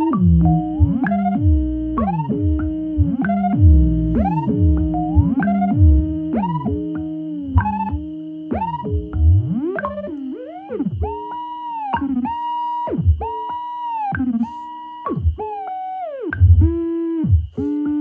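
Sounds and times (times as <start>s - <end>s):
steady high tone: 0.0s - 10.7s
buzzy synthesizer notes sliding down: 0.0s - 12.0s.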